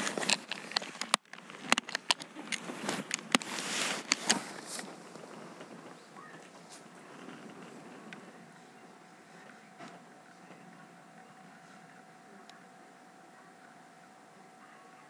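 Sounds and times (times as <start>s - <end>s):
rustling: 0.0s - 12.0s
steady hiss: 0.0s - 15.0s.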